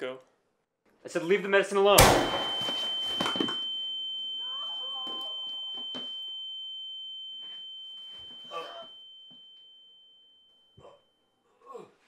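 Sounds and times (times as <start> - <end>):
high-pitched ringing tone: 2.0 - 11.3.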